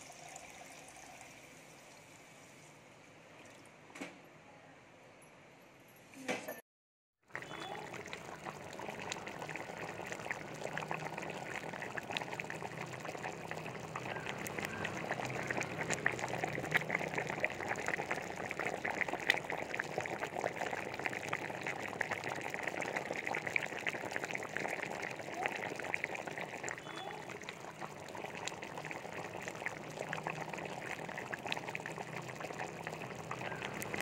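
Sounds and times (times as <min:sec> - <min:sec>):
gravy boiling and bubbling: 0:07.2 - 0:34.0.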